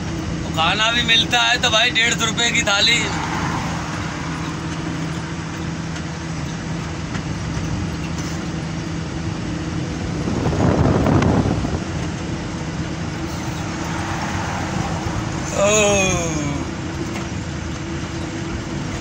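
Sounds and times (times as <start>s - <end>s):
road noise: 0.0s - 19.0s
truck diesel engine drone: 0.0s - 19.0s
rush of noise: 0.3s - 5.6s, 9.9s - 17.5s.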